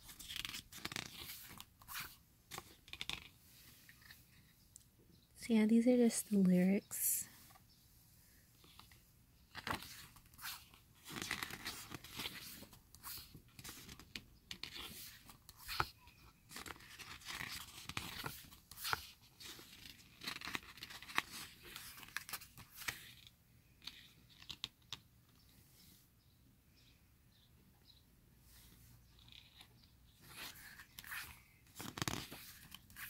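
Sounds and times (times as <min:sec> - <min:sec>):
paper rustling and crinkling: 0:00.0 - 0:04.4, 0:09.5 - 0:24.7, 0:29.2 - 0:33.0
photo book pages turning: 0:00.0 - 0:04.5, 0:08.6 - 0:25.0, 0:29.2 - 0:33.0.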